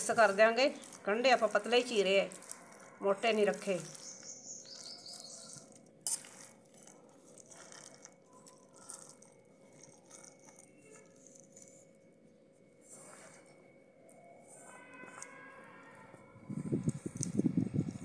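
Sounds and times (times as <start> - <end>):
hands squelching batter: 0.0 - 12.2.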